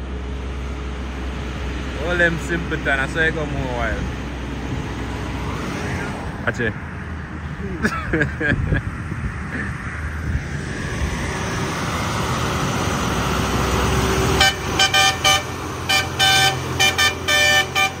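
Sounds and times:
truck diesel engine pulling uphill: 0.0 - 18.0
vehicle horn short toots: 14.4 - 18.0.

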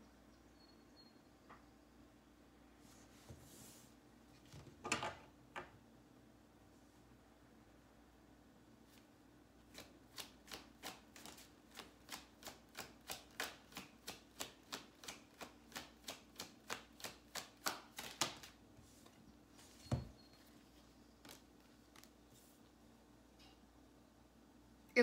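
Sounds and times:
cards slapping together: 9.7 - 18.6.

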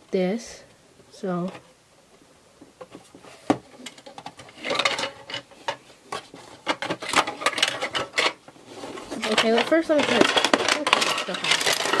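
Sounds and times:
plastic toy pieces clicking and rattling: 3.7 - 8.4, 9.0 - 12.0.

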